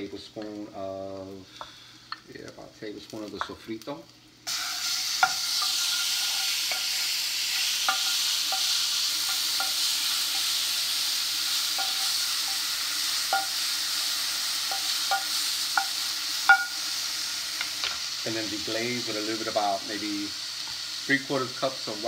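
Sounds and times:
garlic sizzling in oil: 0:00.0 - 0:22.0
wooden spoon tapping pan: 0:11.8 - 0:12.6, 0:13.3 - 0:13.6, 0:14.7 - 0:16.8.

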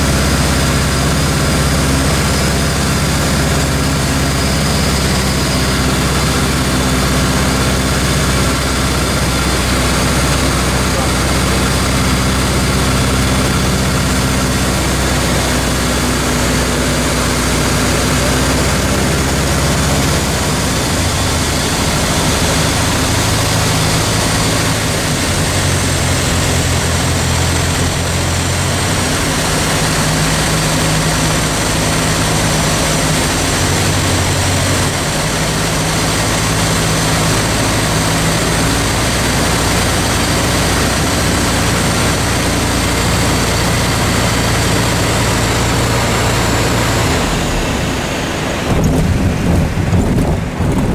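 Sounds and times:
air noise in cockpit: 0:00.0 - 0:50.9
light aircraft engine and propeller: 0:00.0 - 0:50.9.

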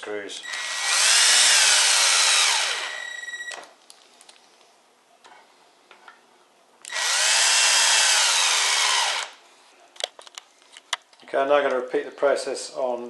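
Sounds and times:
cordless drill driving screws: 0:00.4 - 0:03.6, 0:06.9 - 0:09.4.

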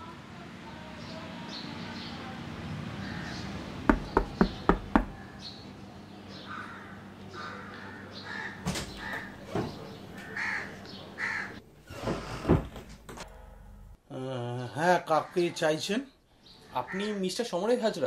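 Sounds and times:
knocking on a door: 0:03.9 - 0:05.2
crows cawing: 0:06.4 - 0:09.4, 0:10.2 - 0:11.6, 0:16.8 - 0:17.4.

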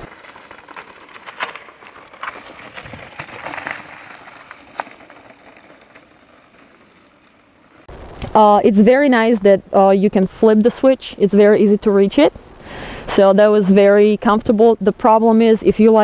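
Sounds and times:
bike clicks and rattles: 0:00.0 - 0:08.3
tyres crunching over leaves and stones: 0:00.0 - 0:08.4.

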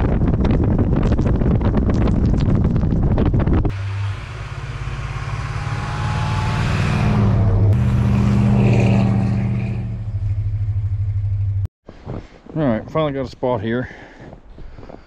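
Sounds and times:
wind on microphone: 0:00.0 - 0:03.8
engine accelerating: 0:03.7 - 0:11.7.

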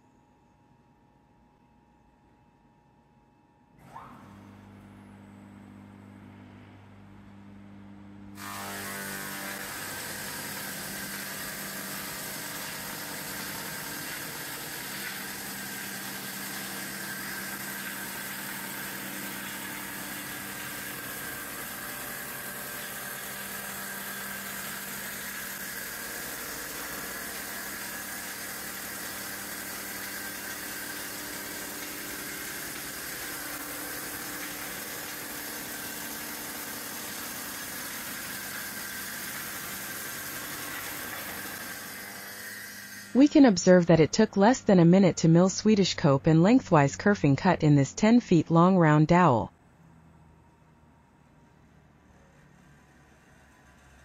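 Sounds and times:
low electric hum: 0:00.0 - 0:09.8.

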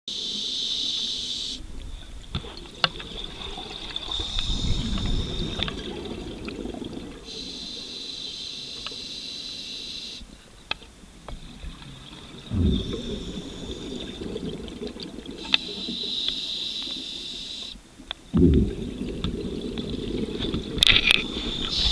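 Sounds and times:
bubbling exhalation: 0:02.8 - 0:07.4, 0:11.5 - 0:15.9, 0:18.3 - 0:21.9
regulator hissing inhalation: 0:12.5 - 0:14.3, 0:15.4 - 0:17.8, 0:21.0 - 0:21.9.

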